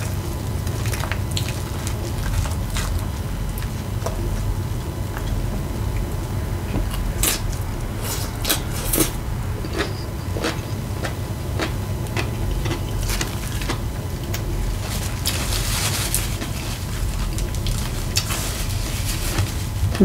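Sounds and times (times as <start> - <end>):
crunchy chewing: 0.0 - 20.0
steady low hum: 0.0 - 20.0
paper napkin rustling: 14.6 - 20.0.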